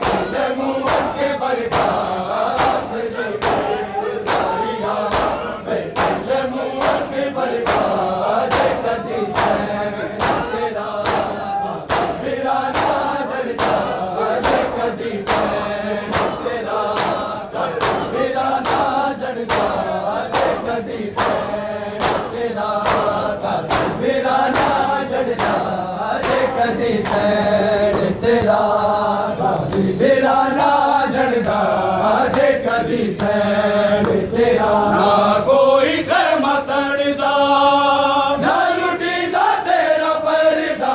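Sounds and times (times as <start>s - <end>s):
hands slapping chests: 0.0s - 28.6s
men chanting in unison: 0.0s - 40.9s.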